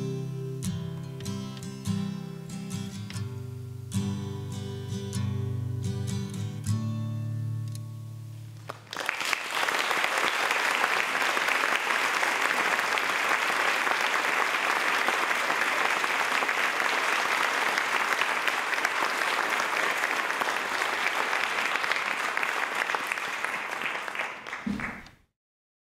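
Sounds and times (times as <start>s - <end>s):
acoustic guitar chord: 0.0s - 8.6s
audience applauding: 8.6s - 25.2s.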